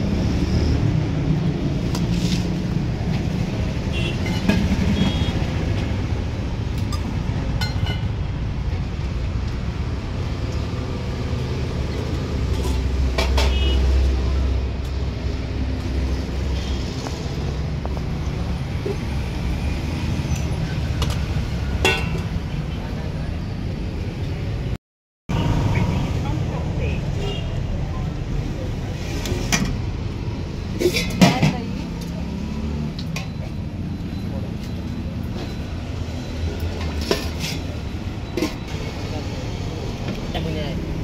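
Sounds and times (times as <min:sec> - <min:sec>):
road traffic passing: 0:00.0 - 0:41.0
steel pots and ladle clinking: 0:06.8 - 0:08.2, 0:21.8 - 0:22.4, 0:30.8 - 0:31.6.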